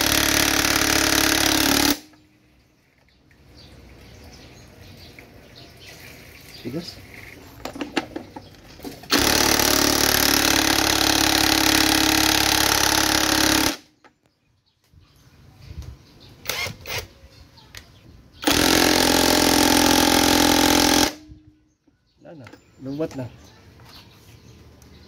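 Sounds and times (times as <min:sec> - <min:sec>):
impact wrench hammering: 0:00.0 - 0:02.2, 0:18.4 - 0:21.2.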